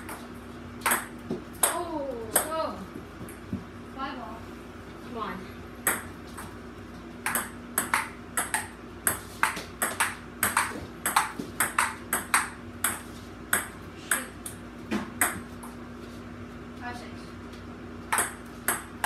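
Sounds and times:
table tennis ball hits: 0.8s - 2.6s, 5.8s - 6.5s, 7.2s - 15.5s, 18.1s - 19.0s.

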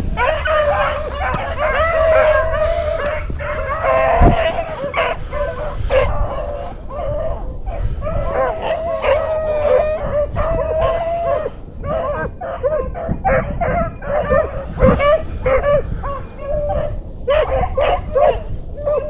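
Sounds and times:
dogs howling: 0.0s - 19.0s
hounds baying and barking: 0.0s - 19.0s.

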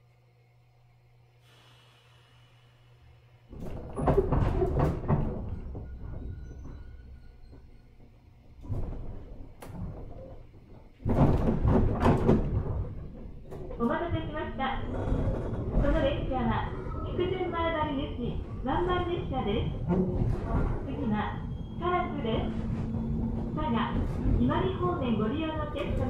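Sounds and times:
faint steady hum: 0.0s - 3.6s
train car clunking and rattling: 3.5s - 26.0s.

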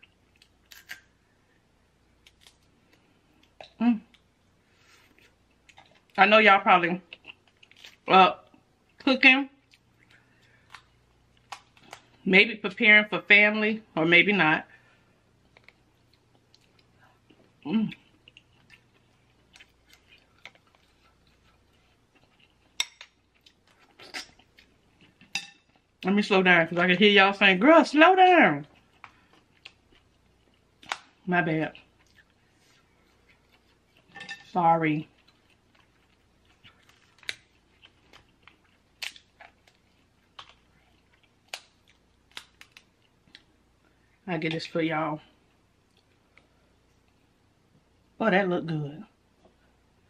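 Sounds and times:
crab shells cracking by hand: 36.8s - 40.6s, 41.3s - 43.5s.

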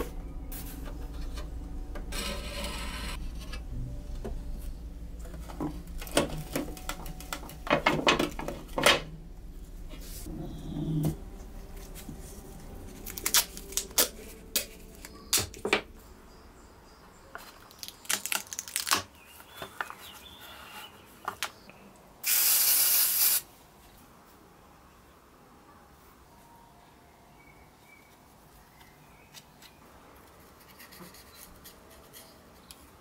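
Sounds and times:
loud even hiss: 22.2s - 23.5s.

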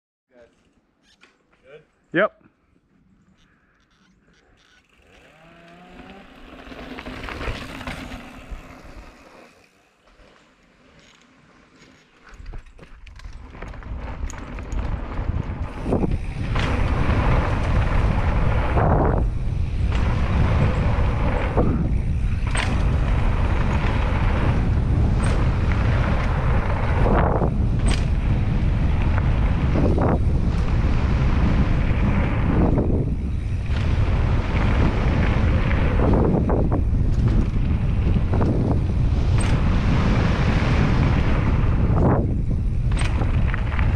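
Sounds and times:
tyres rolling on dirt: 4.8s - 43.9s
wind buffeting microphone: 13.4s - 43.9s.

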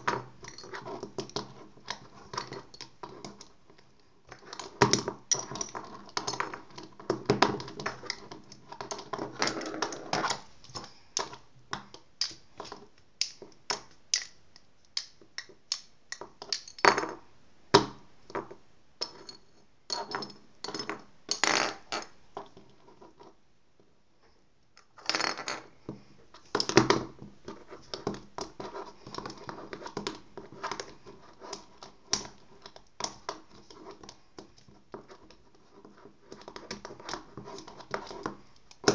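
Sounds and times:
pens clicking and tapping: 0.0s - 16.8s.

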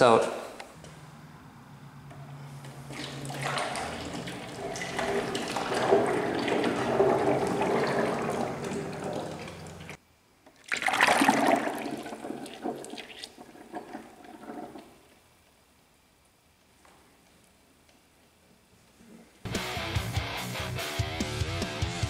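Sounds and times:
oil pouring and splashing into pan: 2.2s - 10.0s, 10.6s - 15.0s.

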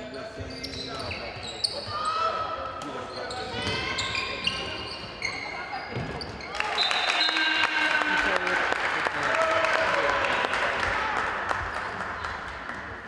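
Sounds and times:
crowd cheering: 6.5s - 12.4s
spectators clapping: 6.5s - 13.0s.

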